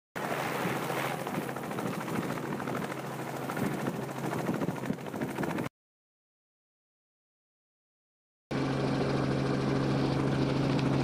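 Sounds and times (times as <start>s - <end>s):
helicopter rotor and engine: 0.2s - 5.7s, 8.5s - 11.0s.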